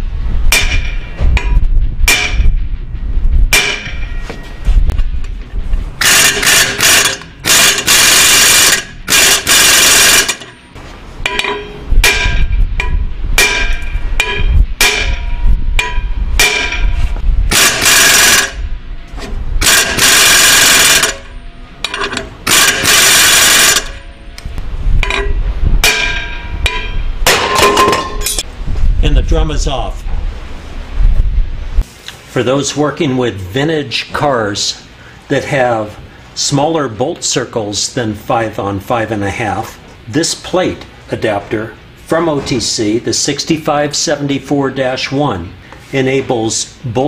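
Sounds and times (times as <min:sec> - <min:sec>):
impact wrench hammering: 0:00.5 - 0:02.5, 0:03.5 - 0:04.2, 0:06.0 - 0:10.6, 0:11.2 - 0:18.6, 0:19.2 - 0:24.1, 0:25.0 - 0:28.5
metallic knocks: 0:00.5 - 0:02.7, 0:03.5 - 0:04.5, 0:11.2 - 0:28.5.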